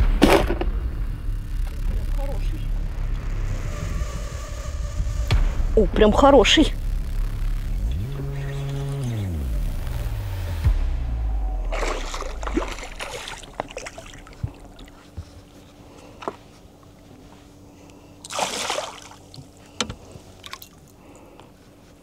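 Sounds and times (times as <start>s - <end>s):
low hum: 0.0s - 22.0s
fish splashing at surface: 11.7s - 15.1s, 18.2s - 19.4s.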